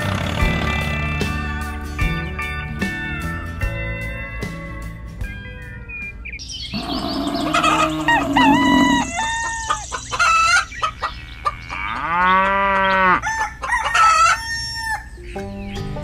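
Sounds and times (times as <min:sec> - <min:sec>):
hen clucking: 0:06.7 - 0:15.4
rooster crowing: 0:07.4 - 0:09.9, 0:12.4 - 0:15.1.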